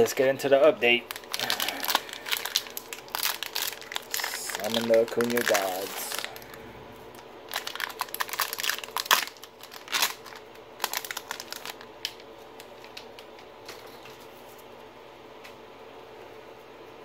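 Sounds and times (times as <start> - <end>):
plastic wrapper crinkling: 0.9 - 14.5.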